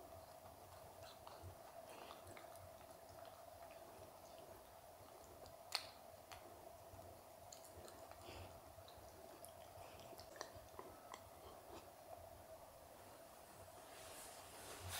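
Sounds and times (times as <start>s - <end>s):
dog licking: 0.0s - 11.9s
low steady hum: 0.0s - 14.9s.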